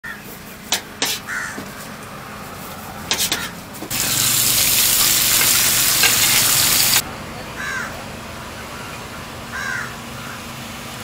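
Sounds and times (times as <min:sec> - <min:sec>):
utensils clicking on steel counter: 0:03.1 - 0:03.5, 0:05.2 - 0:07.0
egg sizzling on griddle: 0:03.9 - 0:07.0.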